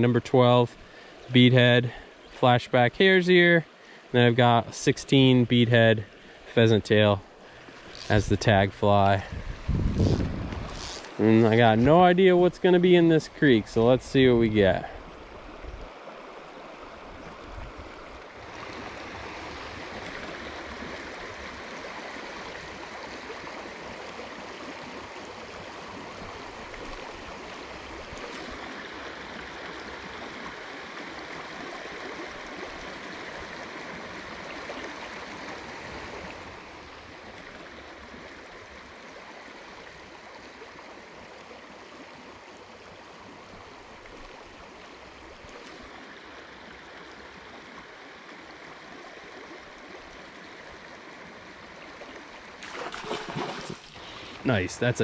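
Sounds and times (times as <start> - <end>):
river current rushing: 6.1 - 38.8, 52.4 - 55.0.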